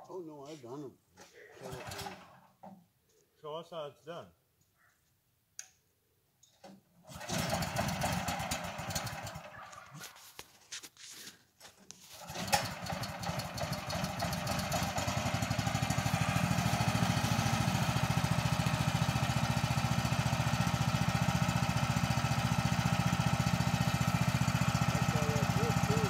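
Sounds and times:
sawmill engine running: 0:07.1 - 0:09.8, 0:12.2 - 0:26.0.

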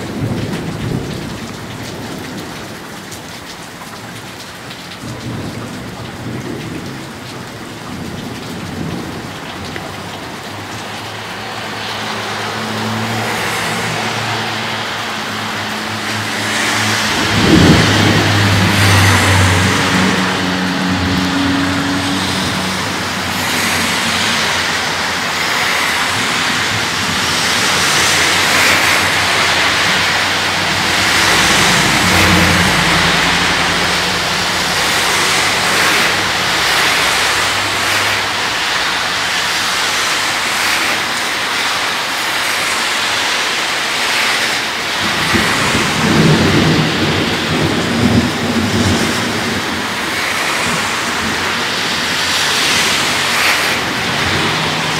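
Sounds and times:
heavy rain falling: 0:00.0 - 0:54.9
thunder rumbling: 0:13.0 - 0:39.9, 0:45.0 - 0:54.9.

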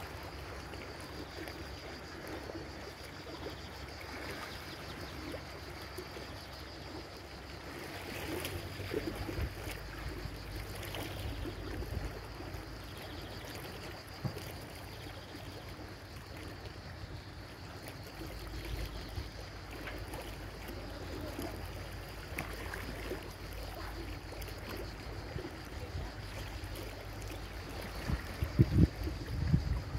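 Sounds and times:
sea water splashing and lapping: 0:00.0 - 0:29.9.

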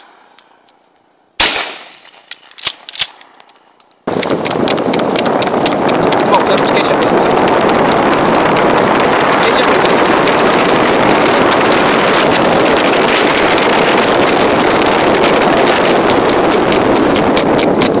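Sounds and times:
horse hoofbeats on asphalt: 0:03.9 - 0:18.0
wind on microphone: 0:04.0 - 0:18.0
car road noise: 0:04.1 - 0:18.0.

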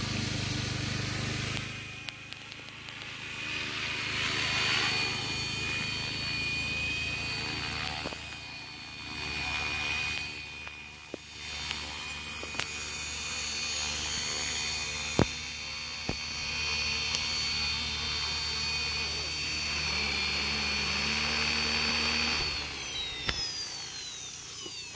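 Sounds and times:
rc helicopter rotor whirring: 0:00.0 - 0:24.9
sharp click: 0:23.2 - 0:23.6.

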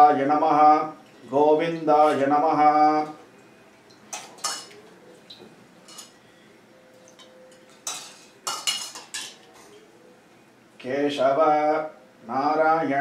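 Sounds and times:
spoons clinking on silver vessels: 0:04.1 - 0:04.8, 0:05.8 - 0:06.2, 0:07.0 - 0:09.8.

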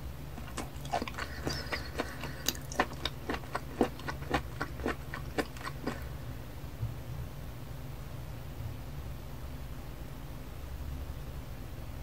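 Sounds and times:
lip smacks: 0:00.4 - 0:06.1
wet mouth clicks: 0:00.4 - 0:06.1.

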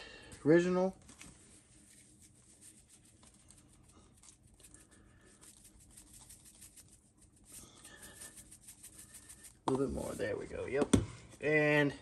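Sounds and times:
seasoning granules pattering: 0:01.7 - 0:10.3.

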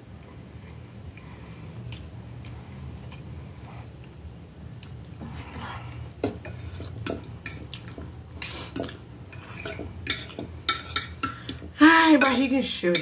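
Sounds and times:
cutlery scraping on a plate: 0:06.2 - 0:13.0.

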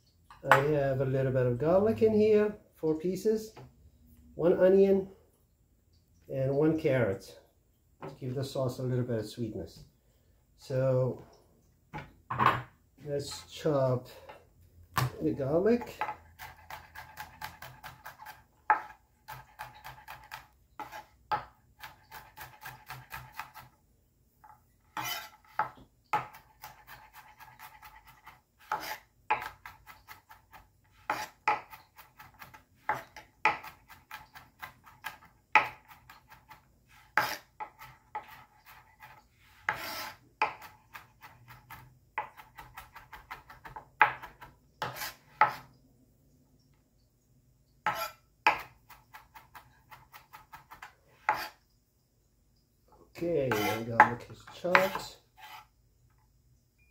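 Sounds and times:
knife chopping on plastic board: 0:14.9 - 0:23.7, 0:24.9 - 0:45.7, 0:47.9 - 0:51.5, 0:53.5 - 0:55.6.

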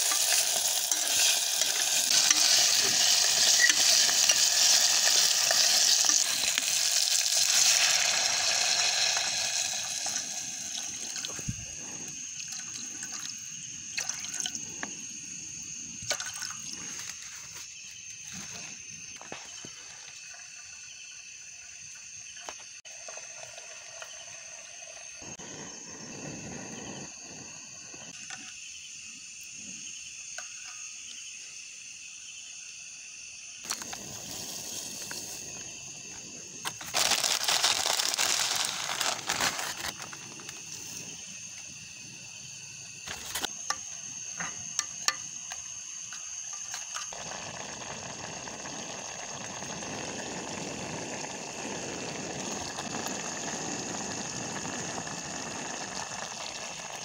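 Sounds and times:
soup bubbling: 0:00.0 - 0:17.2, 0:47.0 - 0:57.0
insect chirring: 0:00.0 - 0:57.0.

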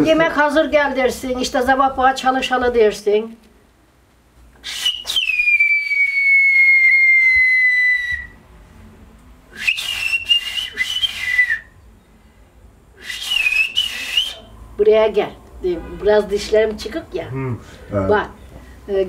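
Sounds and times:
woman whistling through fingers: 0:04.6 - 0:08.4, 0:09.6 - 0:11.7, 0:13.0 - 0:14.6.

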